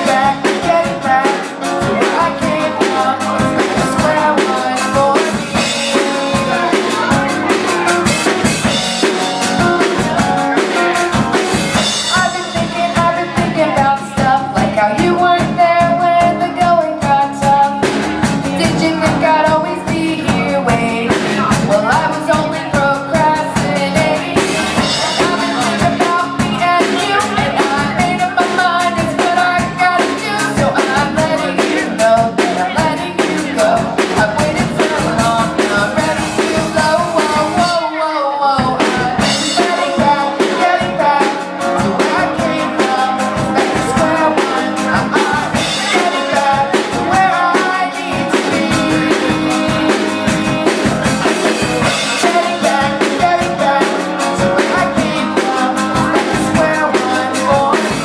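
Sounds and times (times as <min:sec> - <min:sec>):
acoustic guitar strummed: 0:00.0 - 0:38.0
drum kit beat: 0:00.0 - 0:58.0
man and woman singing: 0:00.0 - 0:58.0.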